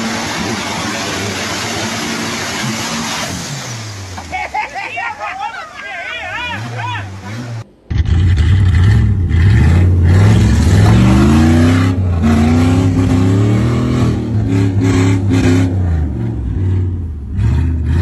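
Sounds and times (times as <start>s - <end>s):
car engine revving hard: 6.4s - 18.0s.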